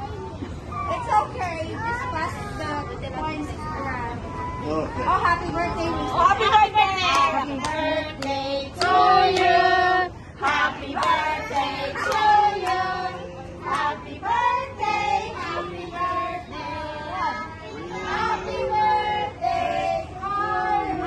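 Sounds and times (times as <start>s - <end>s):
children and adults singing: 6.1s - 21.0s
hand claps: 7.1s - 9.5s, 10.4s - 12.8s.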